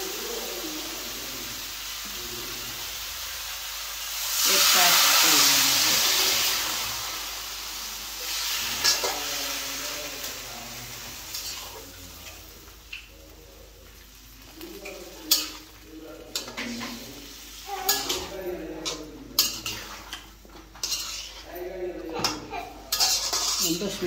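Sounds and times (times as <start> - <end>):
food sizzling in a pan: 0.0 - 24.0
spoon stirring and scraping pan: 8.2 - 13.1, 13.8 - 24.0.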